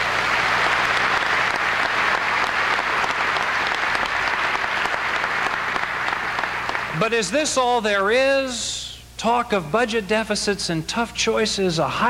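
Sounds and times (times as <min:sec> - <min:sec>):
large audience applauding: 0:00.0 - 0:07.3.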